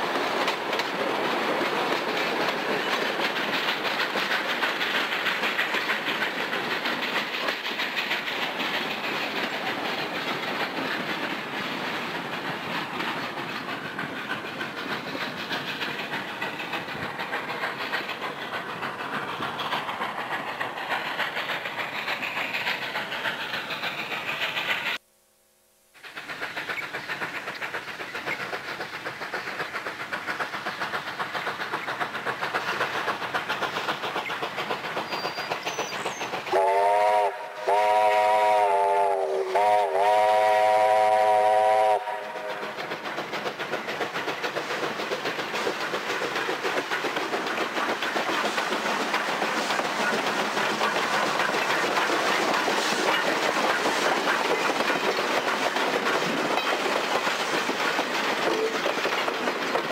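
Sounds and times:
train running: 0.0 - 25.0, 25.9 - 59.9
steam locomotive whistle blasts: 36.5 - 42.6.

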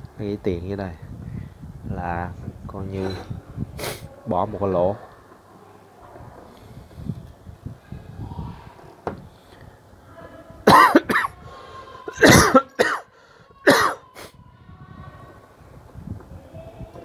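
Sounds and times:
man coughing: 10.7 - 11.4, 12.1 - 13.1, 13.7 - 14.0.

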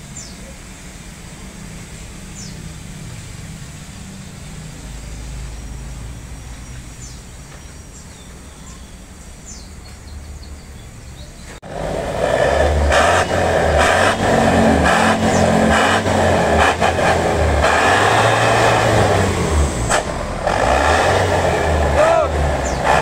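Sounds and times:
diesel bus engine revving: 0.0 - 7.6, 10.8 - 23.0.

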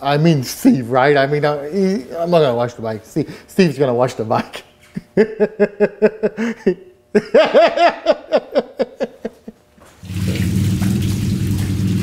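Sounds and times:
low steady hum: 0.0 - 12.0
man laughing: 4.4 - 9.7
water hissing from hose: 10.0 - 12.0.

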